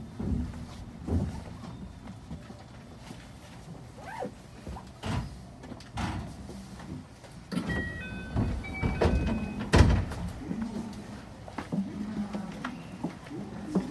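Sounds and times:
high chime tones: 7.7s - 9.7s
train thumps: 7.8s - 10.4s.

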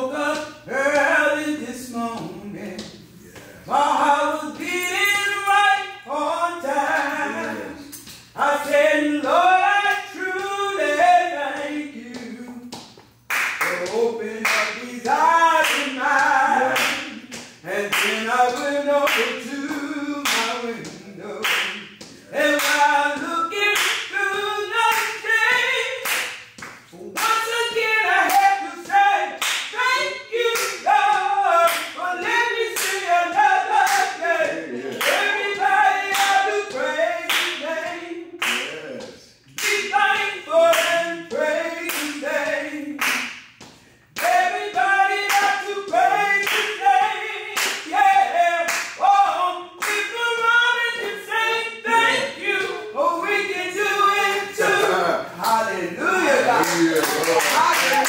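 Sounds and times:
woman singing unaccompanied: 0.0s - 12.8s, 13.6s - 26.2s, 26.9s - 43.2s, 44.2s - 55.2s
hand claps: 11.5s - 27.5s, 28.2s - 37.6s, 38.4s - 46.9s, 47.5s - 48.0s, 48.7s - 49.0s, 49.8s - 50.1s, 56.5s - 58.0s.

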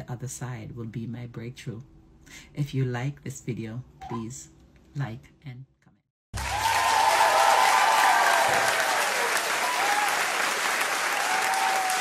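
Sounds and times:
audience applauding: 6.4s - 12.0s
audience cheering: 6.4s - 12.0s.

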